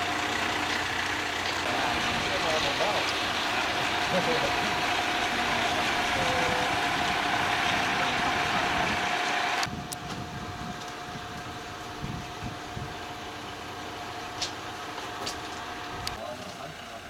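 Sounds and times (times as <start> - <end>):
constant whine: 0.0 - 17.0
diesel locomotive idling: 0.0 - 17.0.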